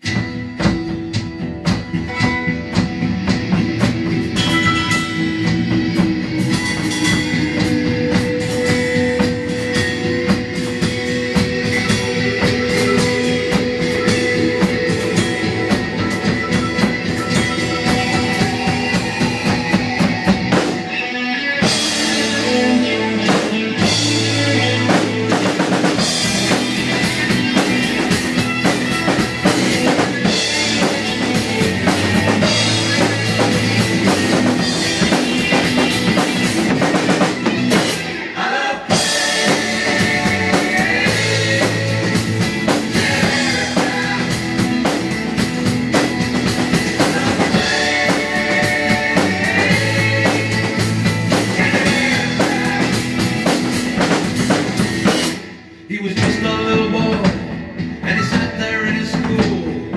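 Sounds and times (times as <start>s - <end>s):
acoustic drum kit playing: 0.0s - 59.9s
rock song with singing: 0.0s - 59.9s.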